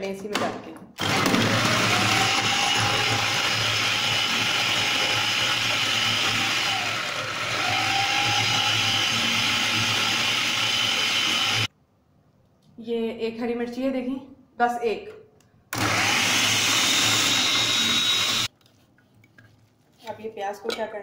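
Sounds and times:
food processor chopping: 1.0 - 11.7, 15.8 - 18.5.

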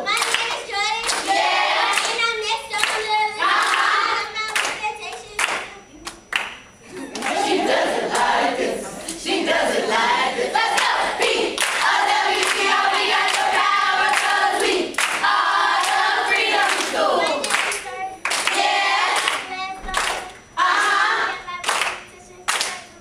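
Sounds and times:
hand claps: 0.1 - 7.5, 11.6 - 21.0, 21.6 - 22.9
group singing a chant: 1.1 - 2.2, 3.4 - 4.3, 6.9 - 21.8.

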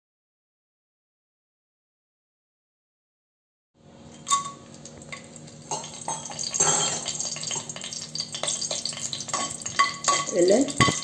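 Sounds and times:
spices sizzling in oil: 4.1 - 11.0.

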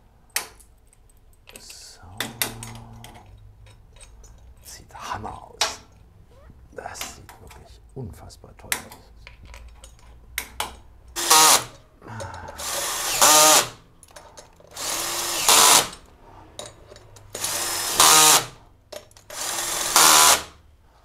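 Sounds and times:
cordless drill spinning nuts: 11.2 - 11.8, 12.6 - 13.8, 14.7 - 16.0, 17.3 - 18.6, 19.3 - 20.5.

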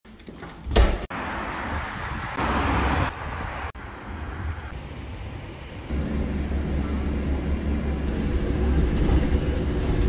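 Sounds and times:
cars passing on wet road: 1.1 - 8.9.

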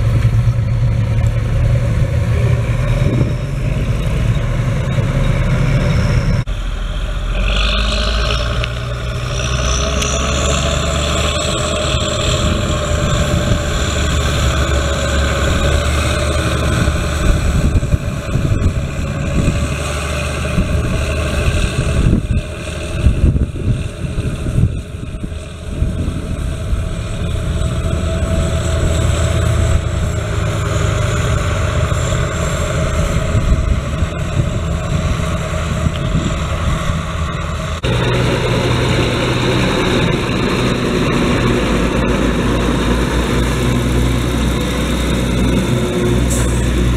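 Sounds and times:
diesel tractor engine under load: 0.0 - 46.9.

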